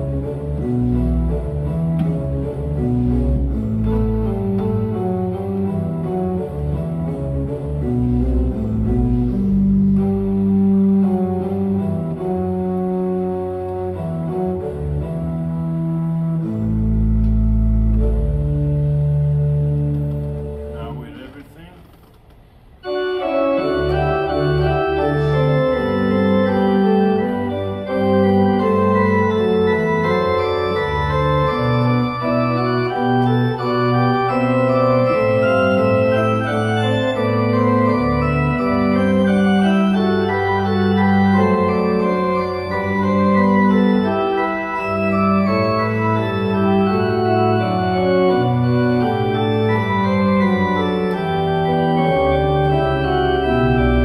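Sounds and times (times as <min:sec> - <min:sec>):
organ pedal bass notes: 0:00.0 - 0:21.5, 0:22.8 - 0:54.0
organ chords: 0:00.0 - 0:21.8, 0:22.6 - 0:54.0.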